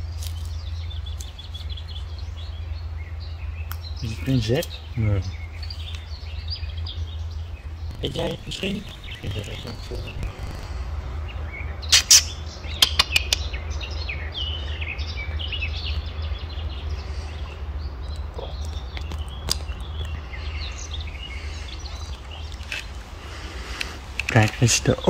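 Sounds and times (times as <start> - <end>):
songbirds chirping and singing: 0.0 - 25.0
steady low rumble: 0.0 - 25.0
sharp clicks: 11.9 - 13.5.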